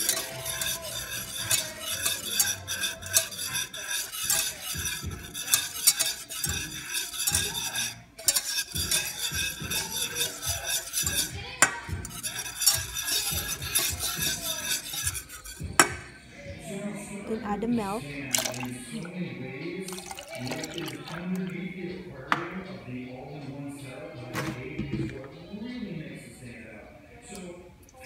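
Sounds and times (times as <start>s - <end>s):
whisk scraping and clinking in pan: 0.0s - 15.9s.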